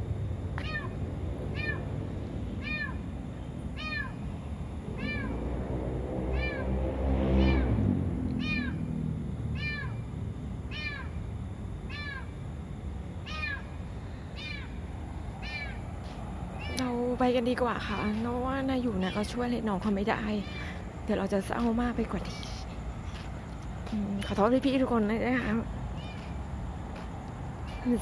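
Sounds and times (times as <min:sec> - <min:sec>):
low rumble: 0:00.0 - 0:10.6
cat meowing: 0:00.6 - 0:01.8, 0:02.6 - 0:03.0, 0:03.8 - 0:04.2, 0:05.0 - 0:05.3, 0:06.3 - 0:06.7, 0:07.4 - 0:07.7, 0:08.4 - 0:08.9, 0:09.6 - 0:10.0, 0:10.7 - 0:11.1, 0:11.9 - 0:12.3, 0:13.2 - 0:13.7, 0:14.4 - 0:14.7, 0:15.4 - 0:15.8, 0:26.0 - 0:26.3.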